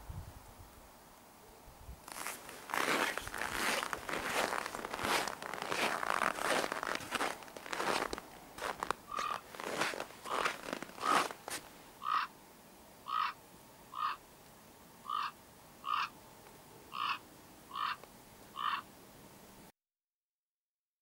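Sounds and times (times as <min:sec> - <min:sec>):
footsteps crunching in snow: 0:02.0 - 0:11.8.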